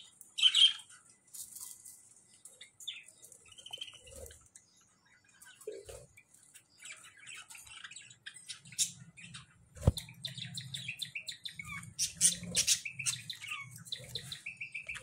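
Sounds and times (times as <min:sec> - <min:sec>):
budgerigars chirping: 0:00.0 - 0:00.9, 0:05.0 - 0:15.0.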